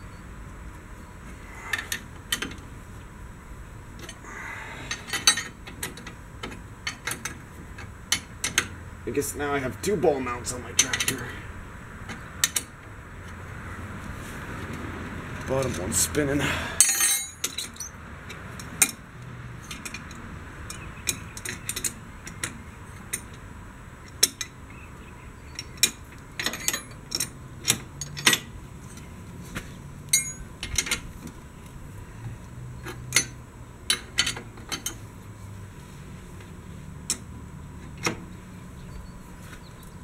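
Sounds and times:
steel wrenches clinking on bolts: 0:04.9 - 0:06.1, 0:10.8 - 0:11.3, 0:16.8 - 0:18.0, 0:25.6 - 0:28.5, 0:30.1 - 0:31.1, 0:32.8 - 0:35.0.

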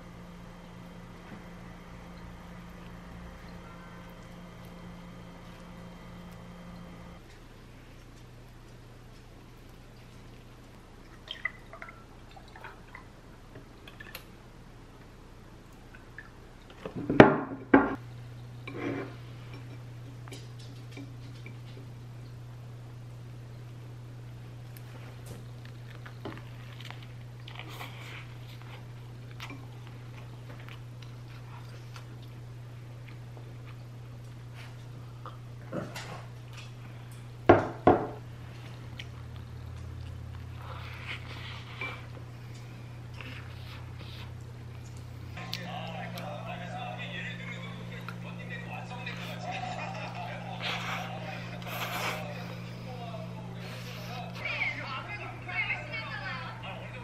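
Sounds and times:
low hum: 0:00.0 - 0:16.8, 0:38.2 - 0:57.0
tableware knocking on table: 0:37.5 - 0:38.2.

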